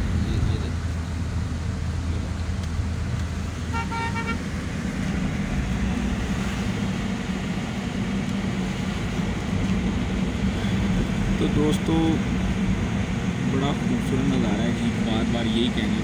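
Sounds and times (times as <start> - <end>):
car engine and road rumble: 0.0 - 16.0
car horn tooting: 3.7 - 4.5.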